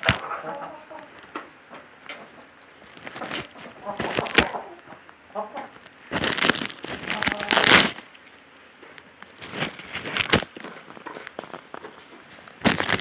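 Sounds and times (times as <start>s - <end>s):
footsteps crunching on wood chips: 6.1s - 8.0s, 9.3s - 13.0s.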